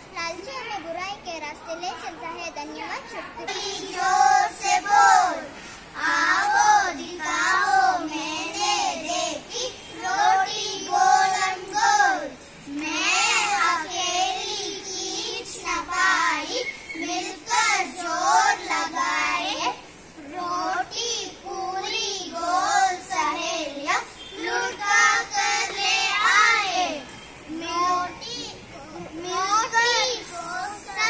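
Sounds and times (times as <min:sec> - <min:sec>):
children singing in unison: 0:03.5 - 0:28.2.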